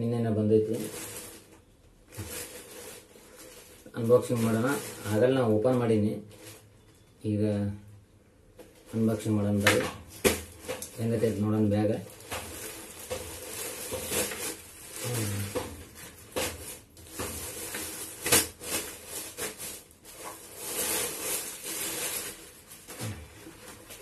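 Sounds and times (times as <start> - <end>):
plastic packaging rustling: 0.6 - 7.2, 8.6 - 24.0
sharp plastic crackle: 0.7 - 5.4, 8.6 - 24.0.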